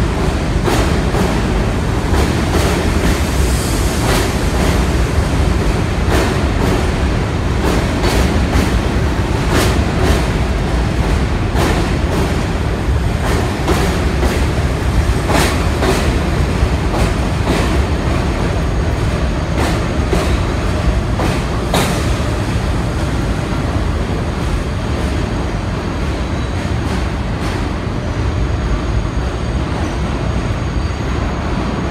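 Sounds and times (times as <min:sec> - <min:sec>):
train wheels clacking: 0:00.0 - 0:28.3
train rumble: 0:00.0 - 0:31.9.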